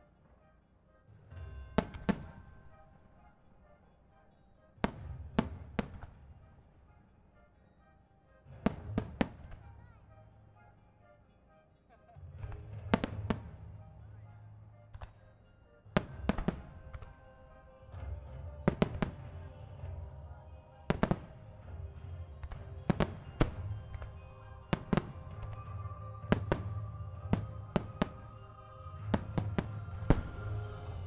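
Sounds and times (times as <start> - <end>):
music playing: 0.0 - 31.0
firework shells bursting: 20.9 - 30.8.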